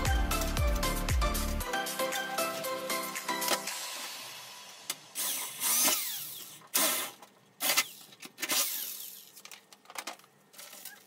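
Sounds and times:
cordless drill on metal: 5.2s - 9.3s.

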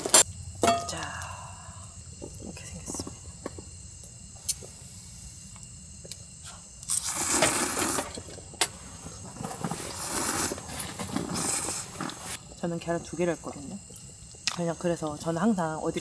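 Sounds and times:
low steady hum: 0.0s - 6.9s.

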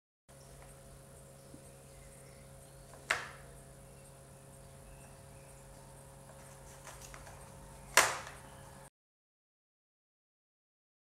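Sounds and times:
low room hum: 0.3s - 8.9s.

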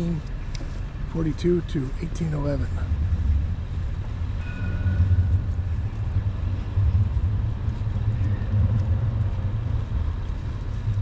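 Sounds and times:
city traffic rumble: 0.0s - 11.0s
wind on microphone: 2.7s - 11.0s.

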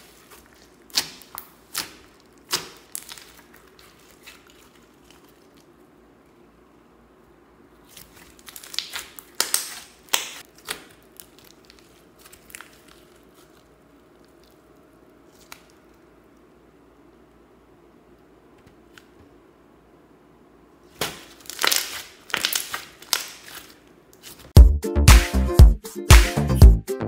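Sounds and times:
slime squishing: 0.0s - 6.4s, 7.7s - 16.5s, 20.9s - 24.6s
foam beads popping and clicking: 21.0s - 23.6s.

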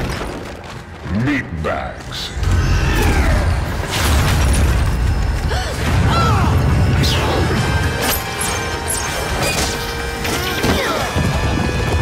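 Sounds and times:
background music: 5.5s - 12.0s.

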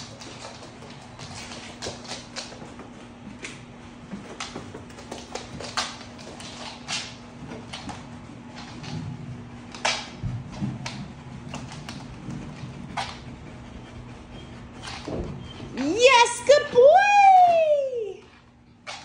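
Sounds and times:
dog nails clicking on wood floor: 0.0s - 13.7s
dog sniffing: 11.5s - 15.9s.

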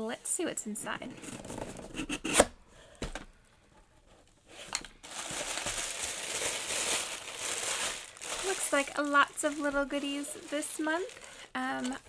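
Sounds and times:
tissue paper rustling: 4.5s - 11.5s.

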